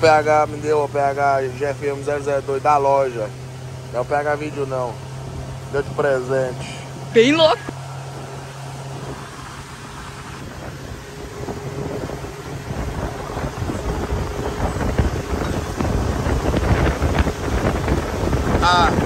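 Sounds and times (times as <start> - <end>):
motorboat engine hum: 0.0 - 19.0
wind rumbling on microphone: 4.9 - 19.0.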